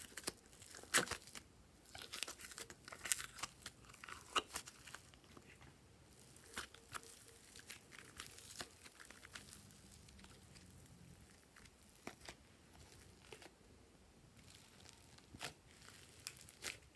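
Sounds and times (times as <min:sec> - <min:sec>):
slime crackles and pops: 0:00.0 - 0:05.1, 0:14.4 - 0:16.9.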